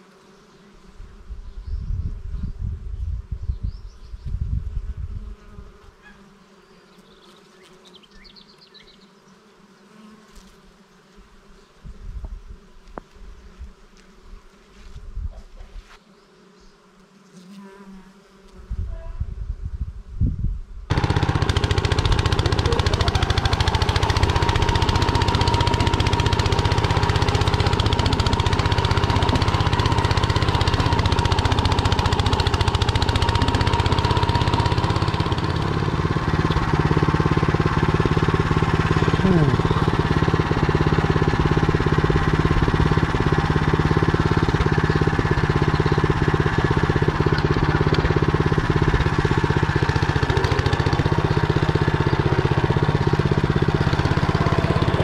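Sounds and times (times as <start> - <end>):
wind on microphone: 1.0 - 5.5, 18.6 - 20.9
tractor engine running: 20.9 - 55.0.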